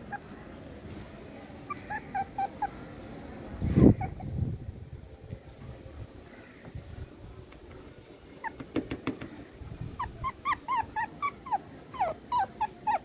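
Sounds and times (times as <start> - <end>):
puppy whimpering yips: 0.0 - 0.4, 1.7 - 2.8, 3.7 - 4.4, 8.2 - 8.7, 10.0 - 13.0.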